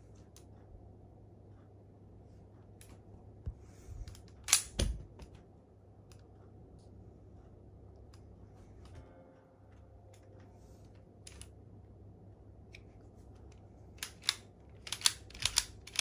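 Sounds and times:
plastic toy bricks clicking: 0:14.0 - 0:16.0.

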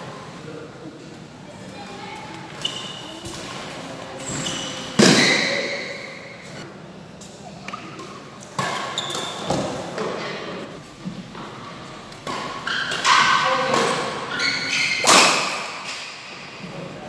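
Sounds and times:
shoes squeaking on court: 0:02.5 - 0:06.6, 0:07.4 - 0:10.0, 0:12.4 - 0:15.2
racket hitting shuttlecock: 0:08.5 - 0:10.2, 0:12.2 - 0:16.2.

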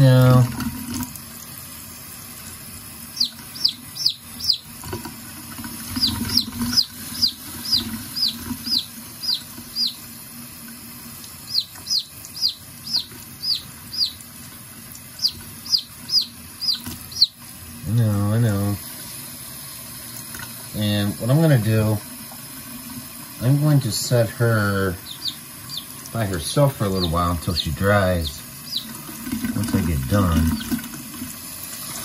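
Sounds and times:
baby chick peeping: 0:03.1 - 0:04.7, 0:05.9 - 0:10.1, 0:11.4 - 0:14.3, 0:15.1 - 0:17.4, 0:24.9 - 0:30.8.

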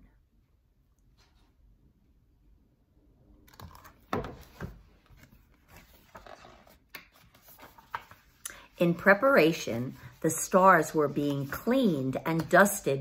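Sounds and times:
paper rustling: 0:03.6 - 0:09.2.

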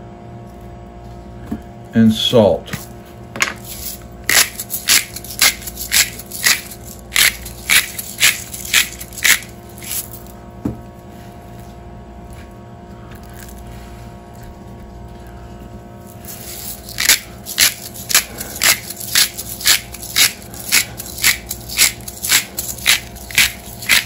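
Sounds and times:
salt shaker shaking: 0:03.6 - 0:10.3, 0:16.1 - 0:24.0.

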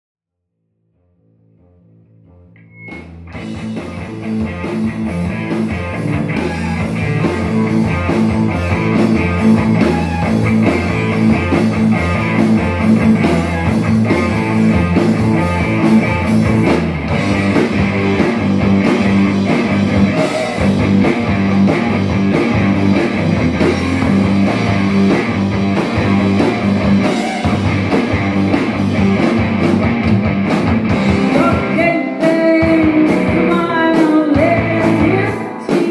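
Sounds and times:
bass: 0:00.5 - 0:35.9
electric guitar: 0:01.3 - 0:35.9
drum kit: 0:02.7 - 0:35.9.

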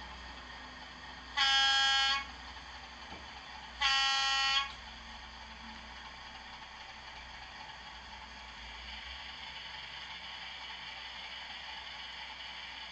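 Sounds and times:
diesel horn blasts through loudspeaker: 0:01.3 - 0:02.4, 0:03.8 - 0:04.8.

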